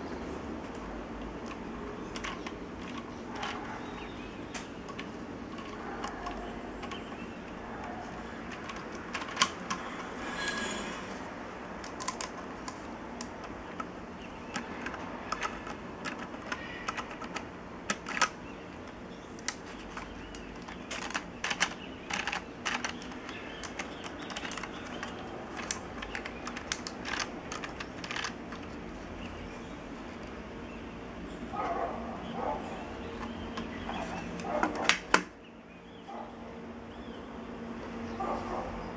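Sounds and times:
plastic gears clicking and rattling: 1.2 - 11.0, 11.8 - 29.4.

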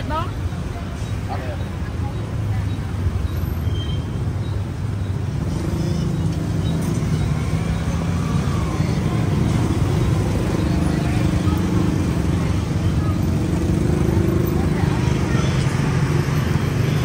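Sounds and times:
vehicle engines humming: 0.0 - 17.0.

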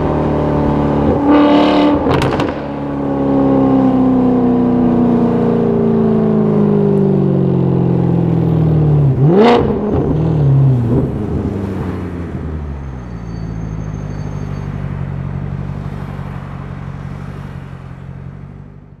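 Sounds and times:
engine revving: 0.0 - 4.9, 9.0 - 12.0.

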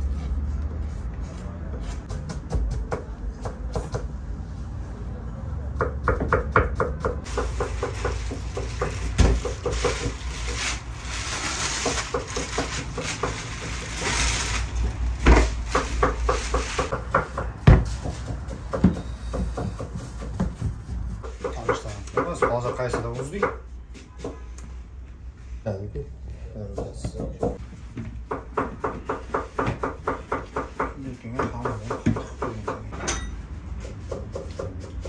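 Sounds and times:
plastic sheeting rustling: 7.3 - 16.9.

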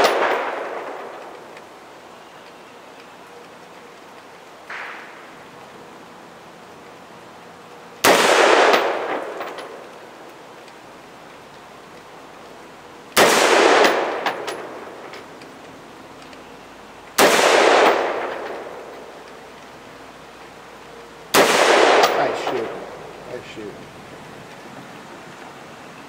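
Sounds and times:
rifle shots with echo: 0.0 - 1.6, 8.0 - 9.8, 13.2 - 15.1, 17.2 - 19.1, 21.3 - 23.0.

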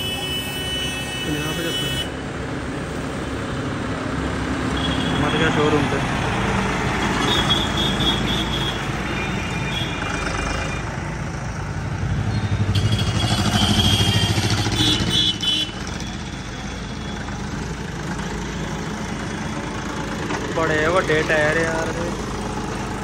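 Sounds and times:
street traffic: 0.0 - 23.0
tractor diesel engine rumble: 15.8 - 23.0.

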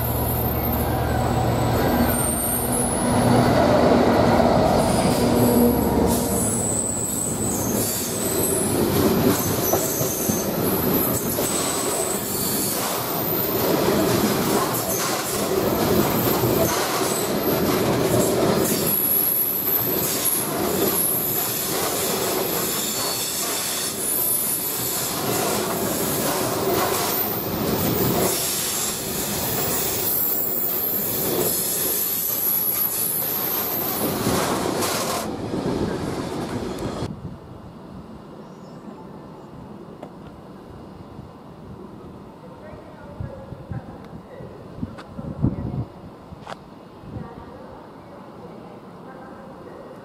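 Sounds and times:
train wheels rumbling and clattering: 0.0 - 37.1
high-pitched wheel squeal: 0.1 - 3.6, 4.8 - 13.6.

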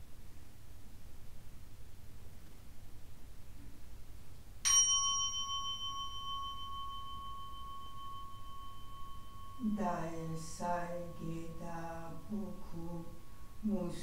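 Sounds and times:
bowl bell ringing: 4.7 - 14.0.

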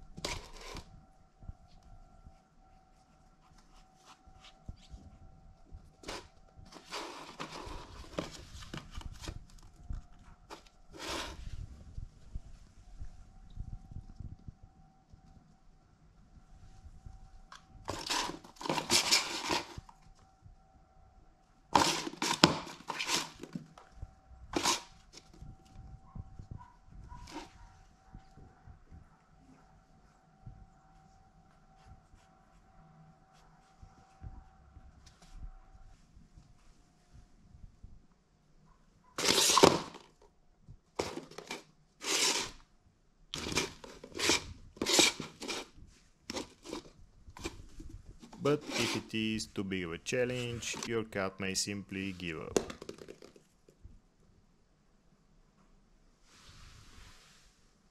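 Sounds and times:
ball rolling and scraping in toy: 0.1 - 0.9, 6.0 - 9.5, 10.4 - 11.7, 17.9 - 20.0, 21.8 - 23.7, 24.6 - 25.3, 39.2 - 40.1, 41.0 - 42.6, 43.4 - 49.1
ball rattling around plastic track: 52.6 - 53.5.

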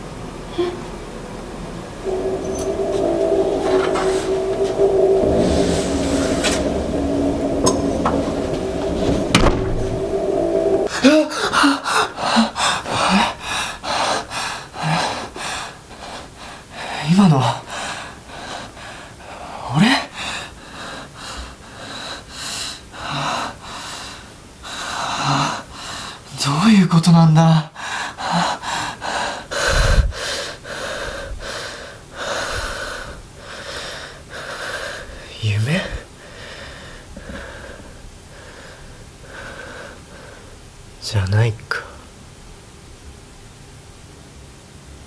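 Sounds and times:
low boom: 2.0 - 11.2.

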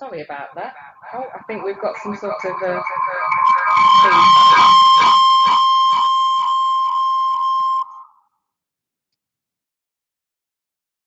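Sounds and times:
echoing speech: 0.0 - 5.2
audio feedback tone: 0.0 - 8.2.

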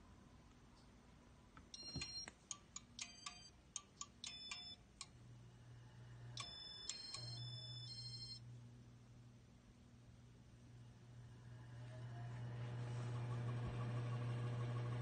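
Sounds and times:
sharp ringing clicks: 1.7 - 5.1, 6.4 - 8.3
ceiling fan motor humming: 1.7 - 15.0.

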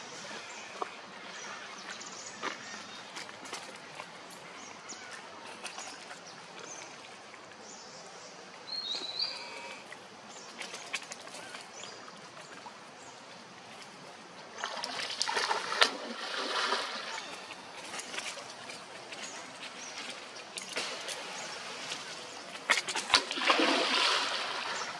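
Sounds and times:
shallow stream running: 0.0 - 24.9
loud splash into water: 23.0 - 24.9.

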